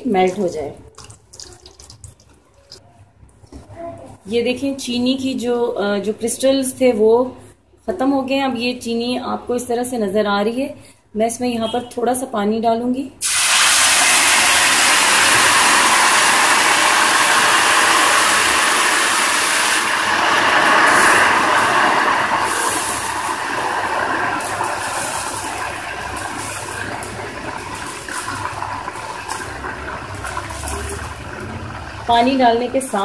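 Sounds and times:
hot fat sizzling: 13.2s - 32.2s.

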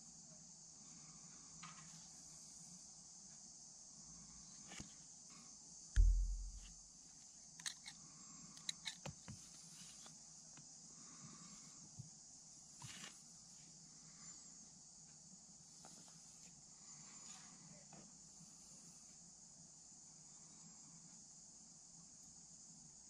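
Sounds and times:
dull low thump: 6.0s - 6.9s
steady hiss: 15.5s - 22.6s.

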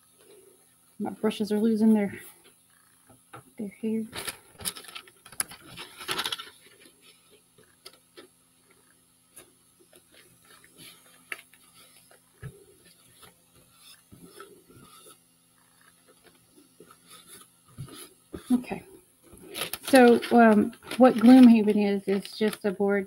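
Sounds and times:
low steady hum: 0.0s - 23.0s
tissue paper rustling: 4.2s - 7.4s, 19.4s - 22.8s
hands rubbing paper: 19.4s - 22.8s.

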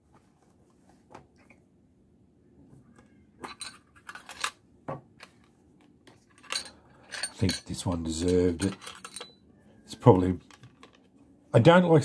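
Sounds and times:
light metallic clicks and clinks: 6.3s - 9.4s.

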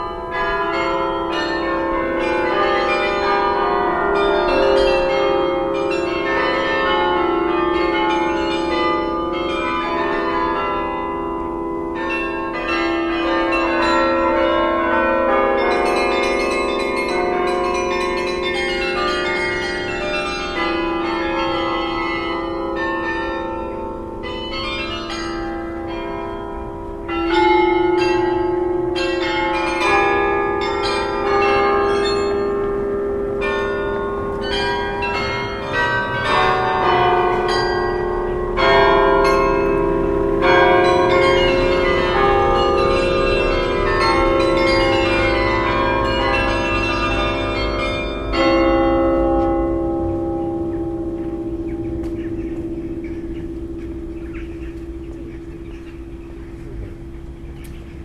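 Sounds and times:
church bells ringing: 0.0s - 58.0s.

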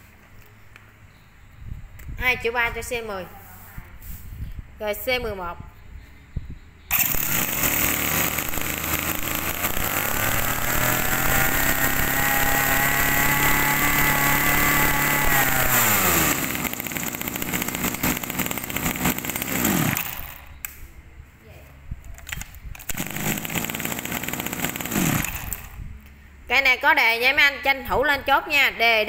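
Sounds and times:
brush cutter engine revving: 6.9s - 20.5s, 22.9s - 25.8s.

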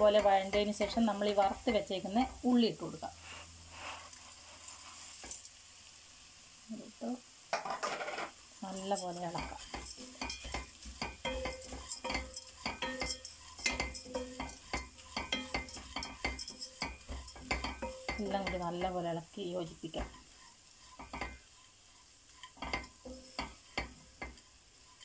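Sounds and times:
spatula scraping a pan: 3.1s - 5.4s, 7.6s - 25.0s.

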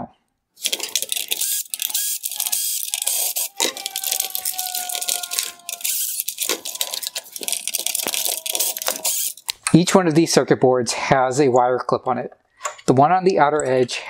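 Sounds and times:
drill motor whining: 0.6s - 9.5s
small parts clicking and rattling: 0.6s - 9.8s.

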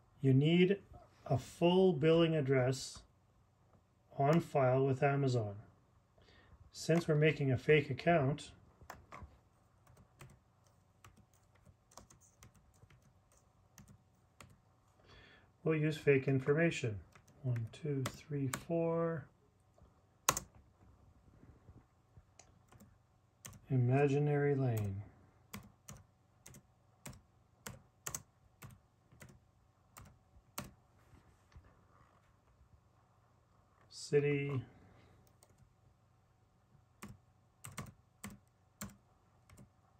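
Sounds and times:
typing on a computer keyboard: 8.8s - 14.6s, 17.0s - 18.7s, 20.3s - 20.6s, 22.6s - 23.6s, 25.5s - 30.8s, 37.0s - 39.7s.

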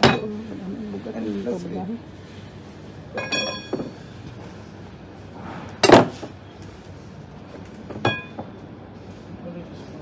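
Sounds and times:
metal weight bars clinking: 3.2s - 4.0s.

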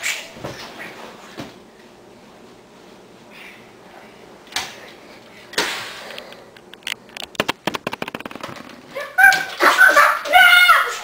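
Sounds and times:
sharp clicks and snaps: 6.1s - 8.6s.

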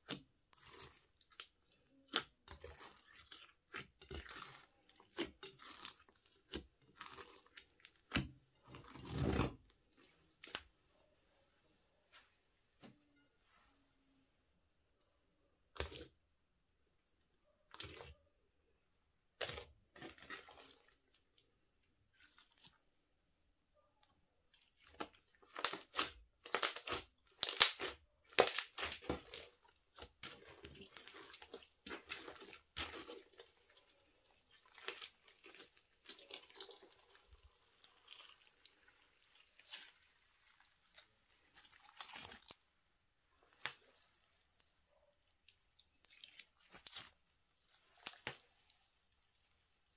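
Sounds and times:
hands kneading sticky slime: 0.0s - 10.7s, 19.3s - 23.0s, 24.5s - 49.9s.

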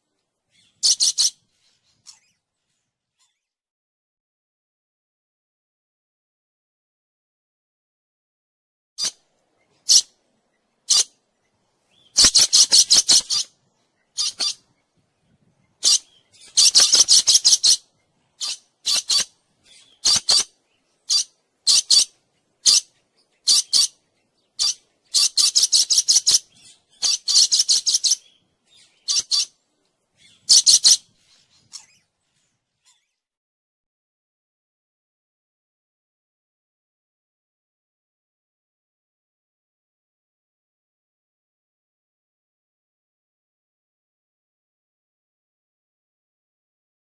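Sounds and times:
parrots screeching: 0.8s - 1.4s, 9.9s - 10.1s, 10.9s - 11.1s, 12.2s - 13.5s, 14.2s - 14.6s, 15.8s - 17.8s, 18.4s - 20.5s, 21.1s - 24.0s, 24.6s - 28.2s, 28.9s - 29.5s, 30.2s - 31.0s, 31.7s - 32.0s.

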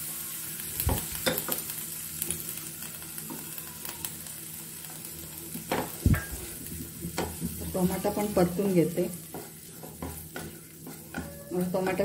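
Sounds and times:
vegetables sizzling in hot oil: 0.0s - 12.0s
spatula clicking and scraping pan: 5.6s - 12.0s.

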